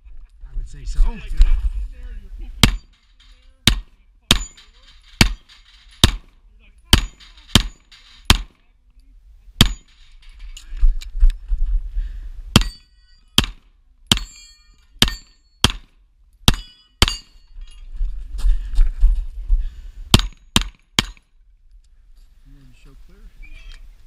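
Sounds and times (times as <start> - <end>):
bullet ringing on steel: 2.6 - 6.3, 6.9 - 8.5, 9.6 - 10.1, 12.6 - 15.9, 16.5 - 17.8
pistol shots: 5.2 - 6.3, 7.0 - 8.6.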